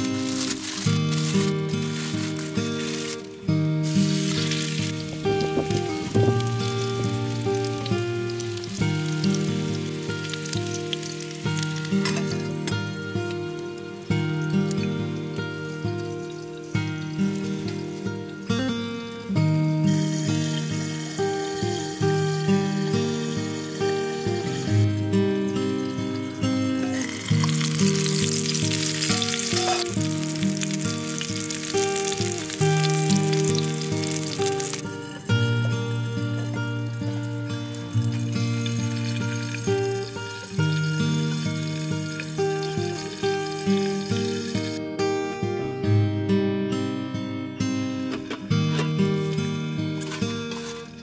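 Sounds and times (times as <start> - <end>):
patty sizzling in grill pan: 0.0 - 18.3, 25.6 - 44.8, 48.7 - 51.0
slow background music: 0.0 - 51.0.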